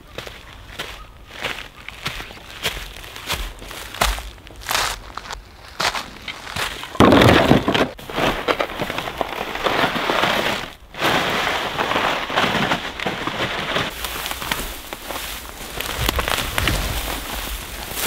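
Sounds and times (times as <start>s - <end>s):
boots crunching crusty snow: 0.0s - 7.0s, 7.9s - 18.0s
firewood being handled: 2.8s - 18.0s
plastic sled dragging: 6.0s - 18.0s.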